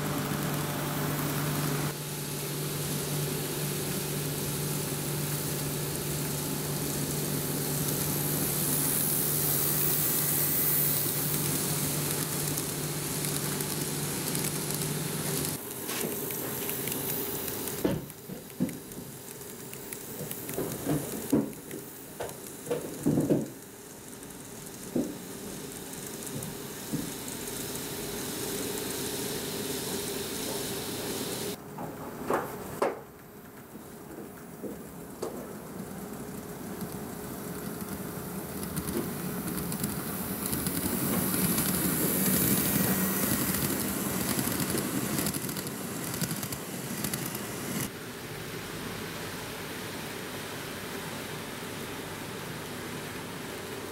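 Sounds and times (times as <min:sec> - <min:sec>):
steady low hum: 0:00.0 - 0:53.9
model train wheels rattling on rail: 0:35.8 - 0:47.9.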